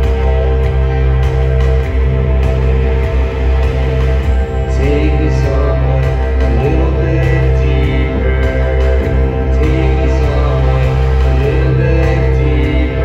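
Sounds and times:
electronic music through pa: 0.0s - 13.0s
man singing: 4.6s - 13.0s.

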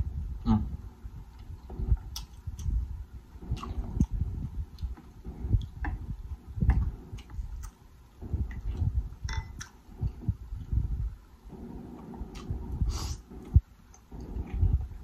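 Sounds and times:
wet chewing: 1.3s - 2.8s, 3.4s - 10.7s, 11.5s - 14.7s
mouth clicks and lip smacks: 1.4s - 2.8s, 3.4s - 7.8s, 12.3s - 14.8s.

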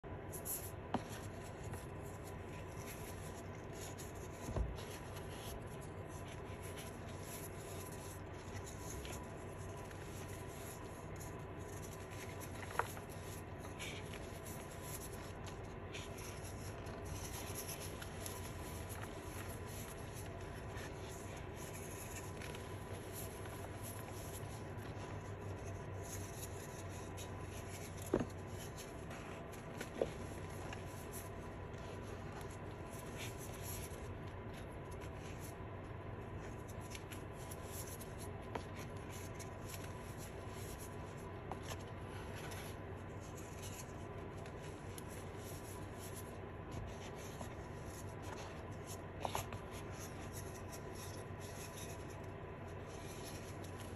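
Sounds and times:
chalk crumbling under fingers: 0.1s - 53.9s.

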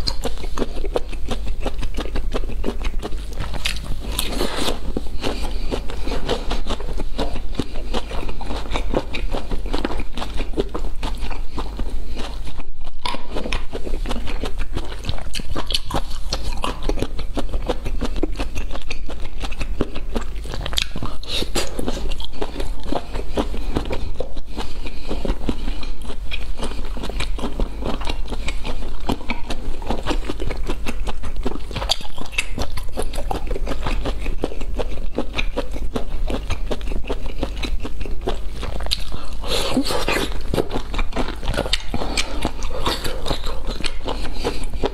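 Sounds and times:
chewing and wet mouth smacks: 0.0s - 44.9s.

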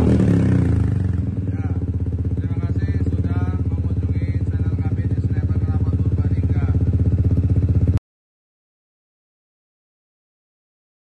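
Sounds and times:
scooter engine idling: 0.0s - 8.0s.

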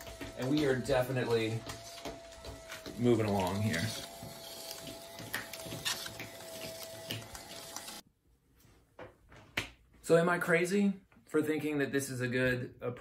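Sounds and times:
film scanner motors whining: 0.0s - 8.0s.

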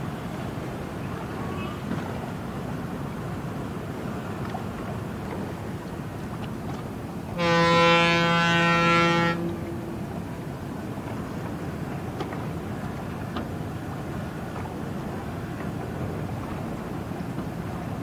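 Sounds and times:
ship's horn blast: 7.3s - 10.0s.

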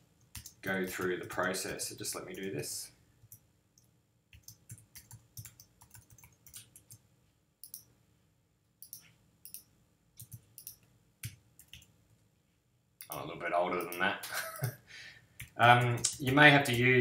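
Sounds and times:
keyboard typing clicks: 0.2s - 1.6s, 3.2s - 7.0s, 7.6s - 7.9s, 8.8s - 11.9s
mouse clicks: 7.6s - 7.9s, 8.8s - 11.9s.

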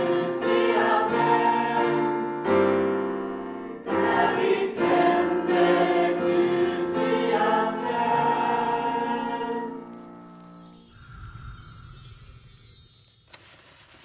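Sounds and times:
youth choir singing in harmony: 0.0s - 2.5s, 3.7s - 9.8s.

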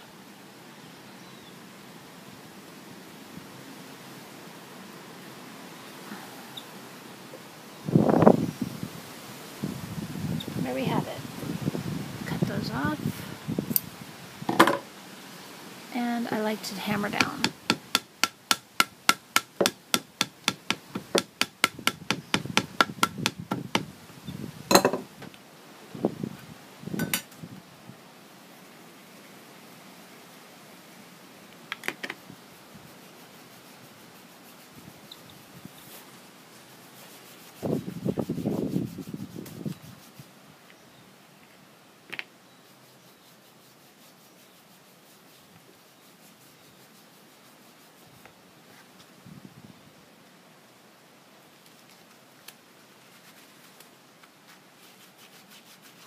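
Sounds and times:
faint hiss: 0.0s - 56.0s
hammer tapping leather: 17.2s - 23.9s.

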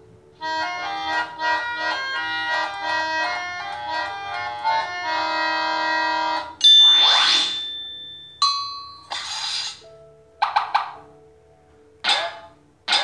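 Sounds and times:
electronic organ-like keyboard tune: 0.0s - 7.2s, 9.9s - 13.0s
bright chime: 6.6s - 9.1s.

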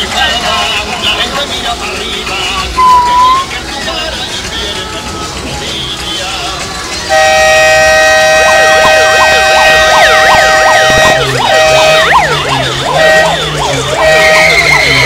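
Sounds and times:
siren yelp: 2.6s - 3.5s, 7.9s - 15.0s
steady siren horn tone: 2.7s - 3.4s, 7.1s - 15.0s.

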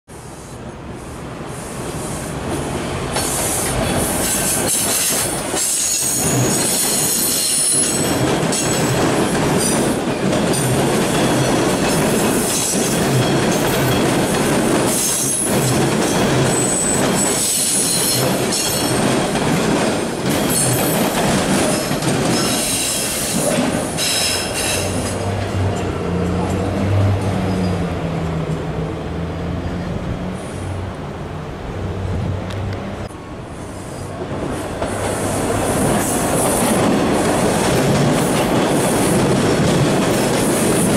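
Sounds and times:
train rumbling past: 0.1s - 40.9s
steel wheels squealing: 3.2s - 8.9s, 14.9s - 19.0s, 20.4s - 25.2s.

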